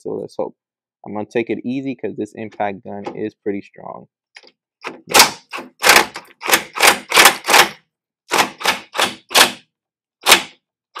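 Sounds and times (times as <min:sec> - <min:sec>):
impact gun hammering bolt: 0:04.8 - 0:09.6, 0:10.2 - 0:10.6.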